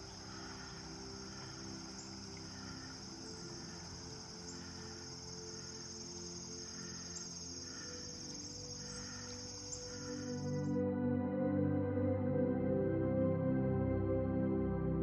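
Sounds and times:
insect chorus trilling: 0.0s - 10.8s
soft background music: 0.0s - 15.0s.

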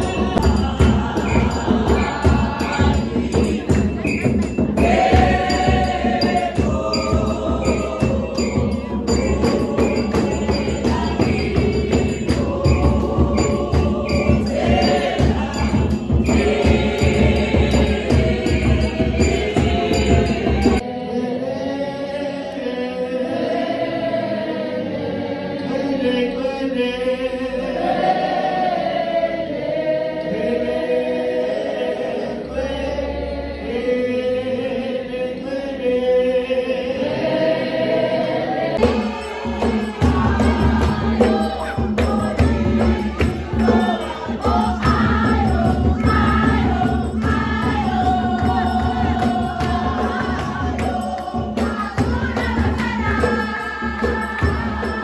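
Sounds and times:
steady beat: 0.0s - 20.8s, 38.8s - 55.0s
congregation singing a hymn: 0.0s - 55.0s.

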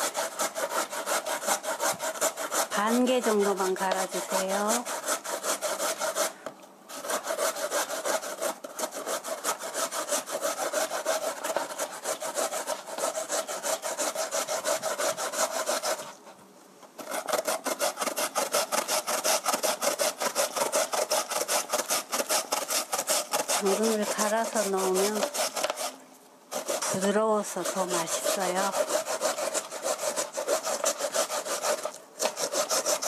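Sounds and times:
carrot grating rasps: 17.0s - 33.0s.

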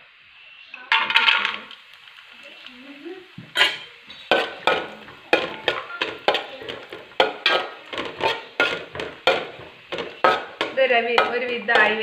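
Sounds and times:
metal spatula scraping pot: 3.6s - 12.0s.

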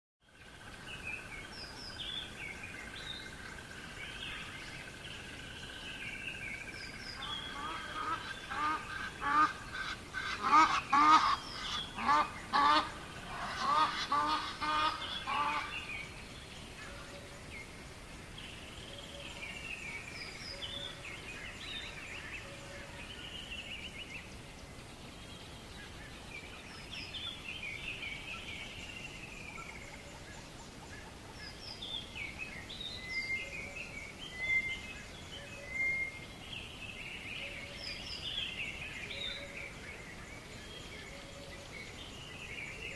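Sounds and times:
songbirds chirping: 0.2s - 42.9s
geese honking: 7.3s - 15.7s.

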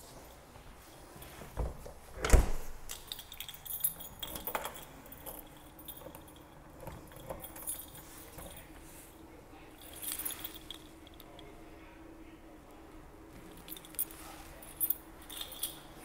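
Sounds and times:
keys jangling: 2.8s - 8.8s, 9.8s - 11.4s, 13.4s - 16.0s.

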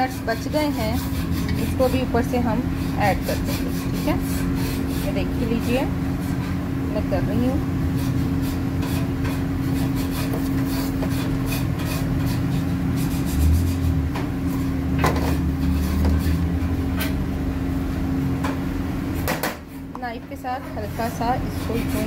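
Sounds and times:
steady hum: 0.0s - 22.0s
sharp knocks: 19.2s - 19.6s.

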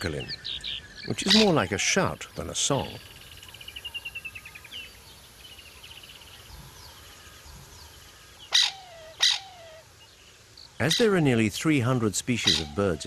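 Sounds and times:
bird trilling and harsh calls: 0.0s - 4.5s, 8.4s - 9.9s, 10.8s - 13.0s.

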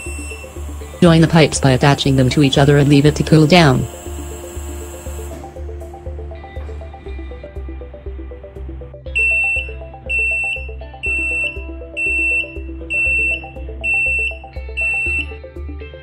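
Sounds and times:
high-pitched buzzer beeps: 0.0s - 1.2s, 9.2s - 15.3s
music with steady beat: 0.0s - 2.2s, 3.8s - 16.0s.

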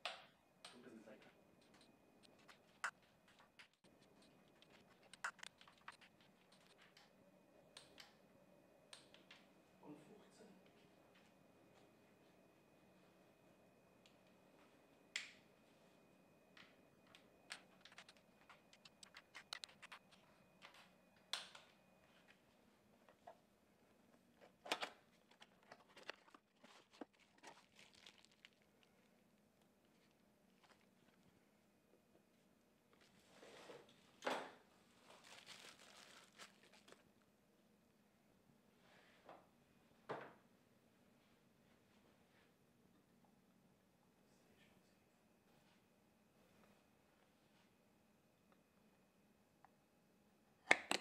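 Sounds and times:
cardboard and bubble wrap rustling: 25.4s - 29.0s, 35.0s - 37.0s.

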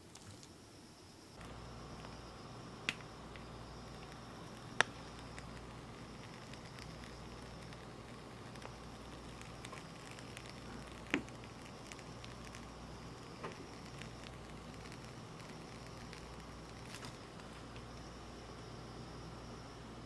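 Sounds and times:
steady low hum: 0.0s - 20.0s
whipped cream squishing: 3.8s - 17.5s.

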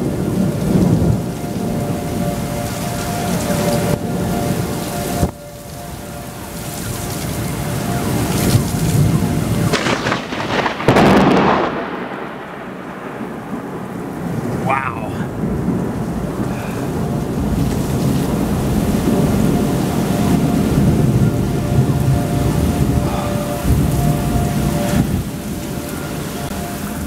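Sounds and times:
heavy rain pouring: 0.0s - 27.0s
thunder rumbling: 0.0s - 27.0s.

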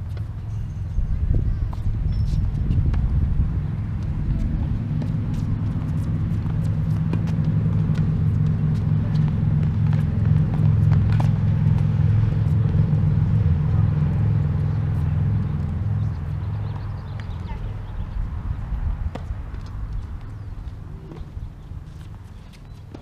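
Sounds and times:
low engine hum: 0.0s - 23.0s
tennis balls struck and bouncing: 3.8s - 14.2s, 19.0s - 21.4s.

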